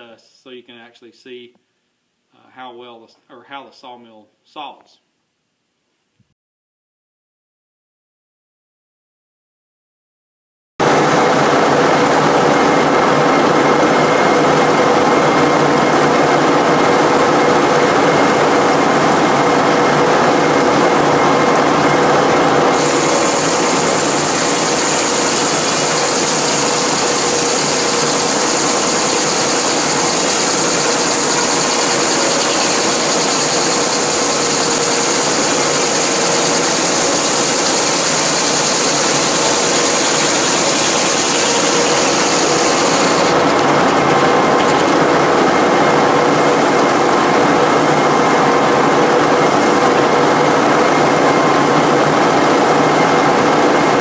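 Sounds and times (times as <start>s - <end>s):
saw blade cutting log hiss: 22.8s - 43.3s.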